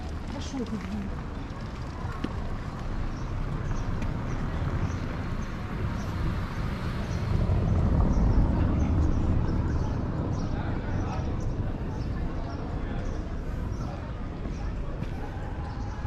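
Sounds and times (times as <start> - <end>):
low fluctuating street rumble: 0.0 - 16.0.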